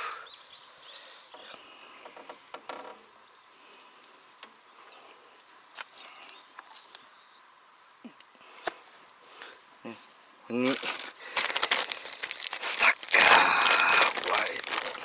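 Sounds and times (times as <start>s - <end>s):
faint insects calling: 0.0s - 9.6s.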